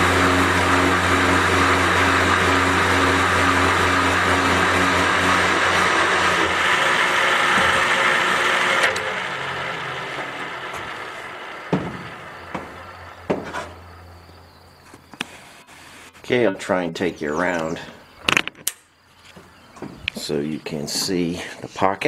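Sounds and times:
hissing cutting noise: 0:00.0 - 0:14.1
motor hum: 0:00.0 - 0:15.2.

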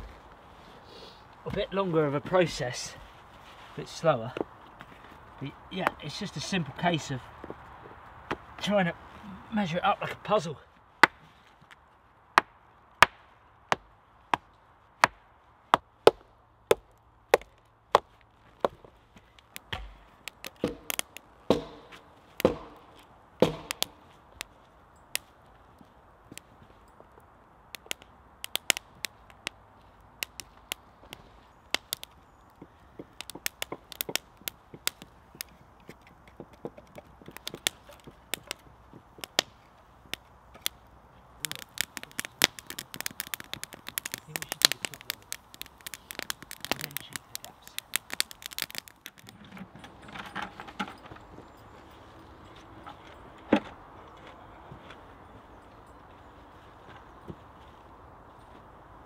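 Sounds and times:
wood fire crackling: 0:00.0 - 0:55.4
stones knocking: 0:01.5 - 0:02.7, 0:19.6 - 0:24.0, 0:31.8 - 0:39.5, 0:41.4 - 0:51.3
split wood clattering: 0:19.4 - 0:24.0, 0:41.4 - 0:51.4.

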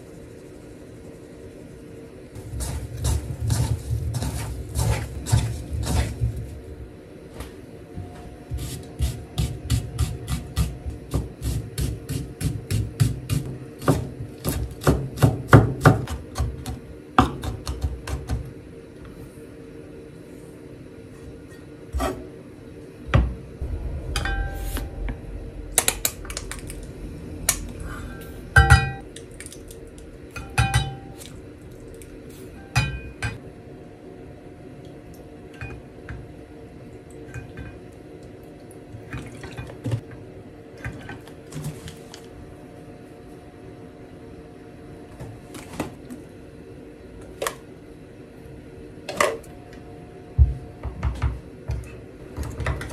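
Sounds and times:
low steady hum: 0:18.8 - 0:52.9.

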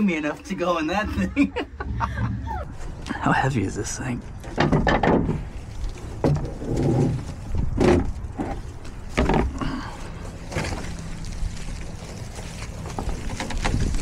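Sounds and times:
tree dragged across truck bed: 0:05.2 - 0:14.0.

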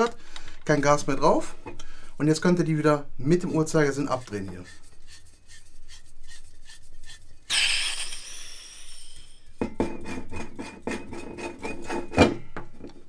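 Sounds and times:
gas hissing: 0:07.5 - 0:09.6.

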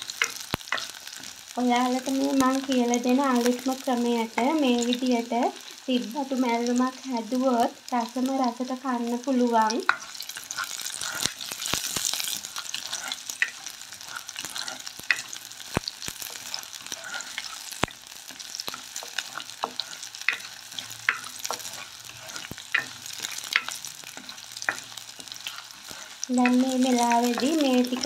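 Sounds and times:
oil popping and crackling: 0:00.0 - 0:03.8, 0:08.8 - 0:28.0
shallots sizzling in hot oil: 0:00.0 - 0:28.0
wooden spoon scraping clay pot: 0:09.8 - 0:28.0.

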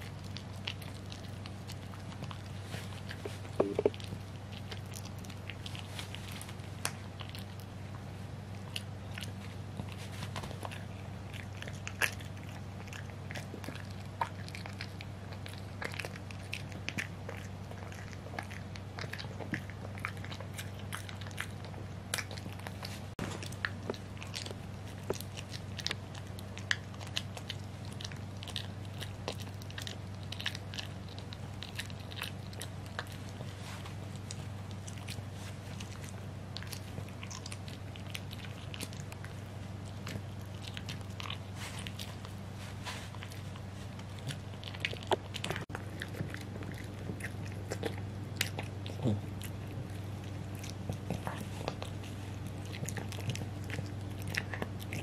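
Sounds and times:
low hum: 0:00.0 - 0:11.6
dog gnawing a hard chew: 0:00.0 - 0:55.0.

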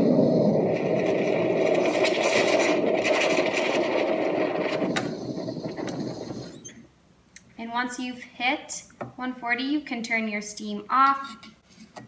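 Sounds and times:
steam wand frothing milk: 0:00.0 - 0:06.8.

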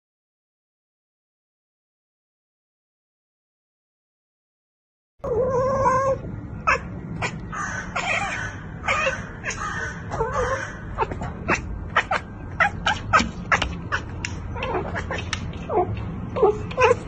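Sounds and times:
cat chattering: 0:05.3 - 0:17.0.

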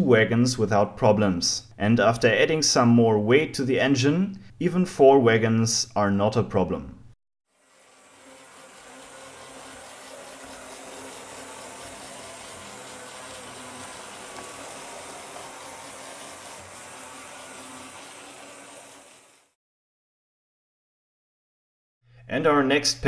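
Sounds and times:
toy train motor whirring: 0:07.5 - 0:19.6.

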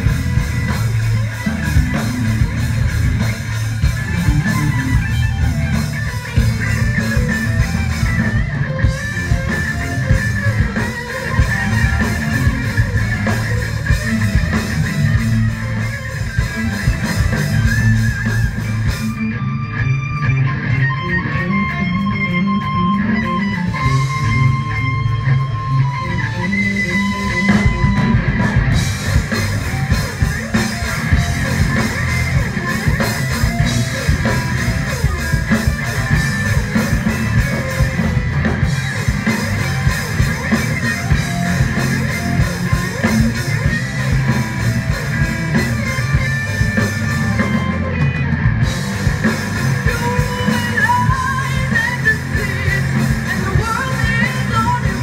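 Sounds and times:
bass guitar: 0:00.0 - 0:55.0
distorted electric guitars: 0:00.0 - 0:55.0
drum kit: 0:00.0 - 0:55.0
person singing: 0:49.8 - 0:55.0.

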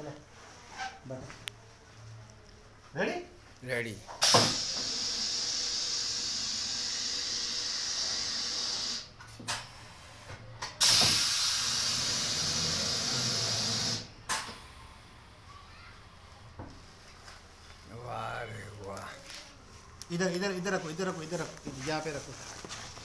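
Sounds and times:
compressed air hissing: 0:04.1 - 0:14.5.

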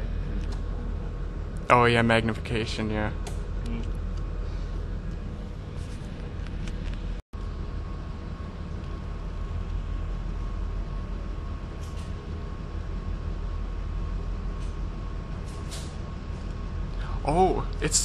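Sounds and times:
low hum and hiss: 0:00.0 - 0:18.0.

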